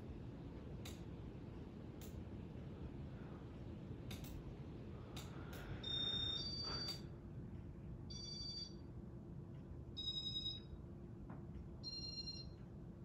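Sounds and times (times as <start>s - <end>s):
ceiling fan humming: 0.0s - 13.0s
light clicks: 4.1s - 4.4s.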